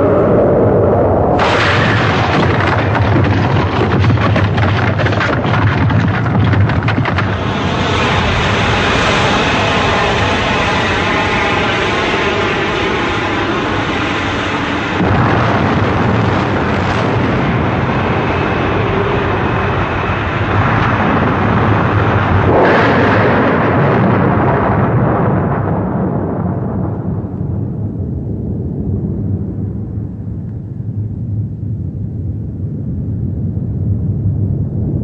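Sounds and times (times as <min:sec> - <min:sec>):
rumble of explosions: 0:00.0 - 0:35.0
aircraft engine drone: 0:07.1 - 0:25.2.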